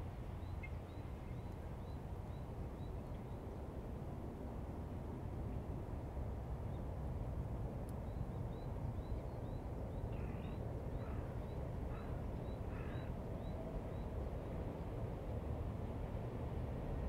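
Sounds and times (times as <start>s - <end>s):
low outdoor rumble: 10.0s - 17.0s.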